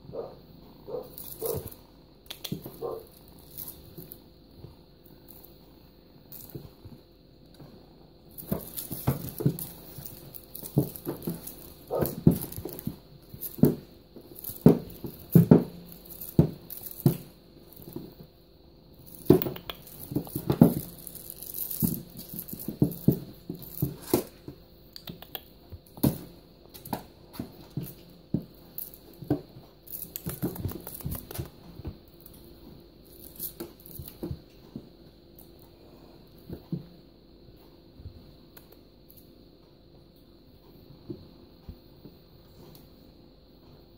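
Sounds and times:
feathers rustling and scraping: 8.3 - 18.2, 19.0 - 24.5
paws thumping on hard surface: 8.4 - 18.2.

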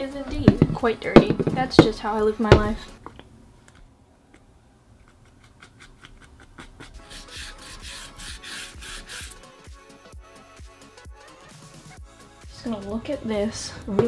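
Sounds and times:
brush scratching on cardboard: 5.0 - 9.6.

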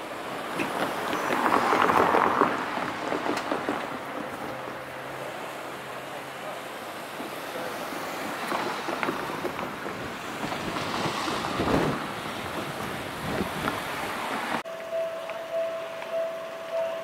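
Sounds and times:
street noise: 0.0 - 17.0.

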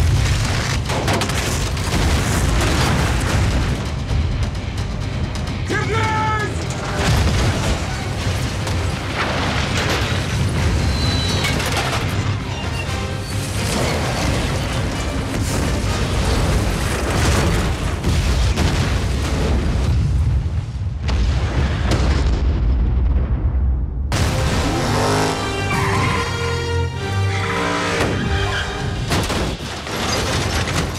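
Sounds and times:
explosions: 0.0 - 5.0, 6.7 - 12.3, 13.4 - 25.3
fire crackling: 0.0 - 12.2
deep rumble: 13.6 - 25.0.

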